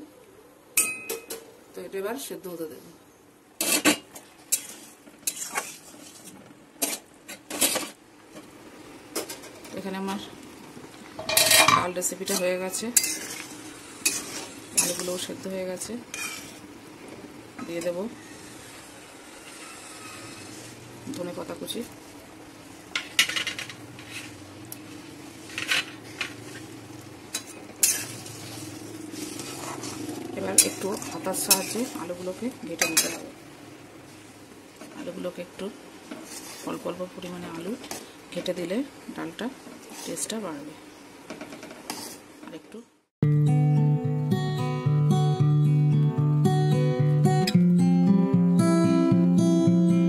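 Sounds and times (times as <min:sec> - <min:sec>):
metal utensil clinking on pan: 0:11.2 - 0:13.4, 0:30.5 - 0:31.9, 0:32.8 - 0:33.3
curry bubbling: 0:18.5 - 0:35.2.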